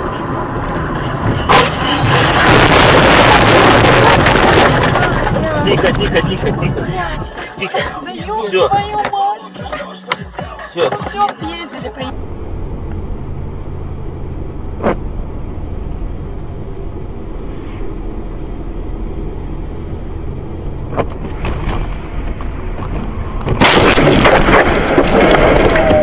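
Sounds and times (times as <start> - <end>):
loud rough crashing: 1.5 - 5.7, 12.1 - 26.0
car rumbling on road: 12.1 - 26.0.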